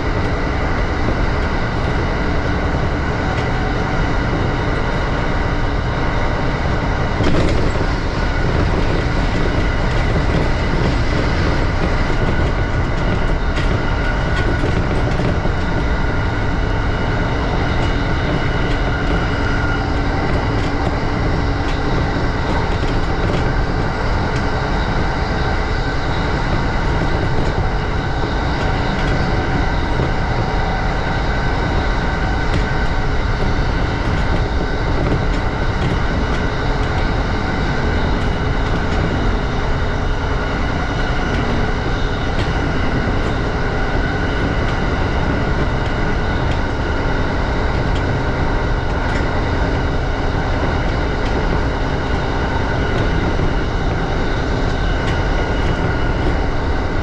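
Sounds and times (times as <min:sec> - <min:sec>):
train wheels rumbling: 0:00.0 - 0:57.0.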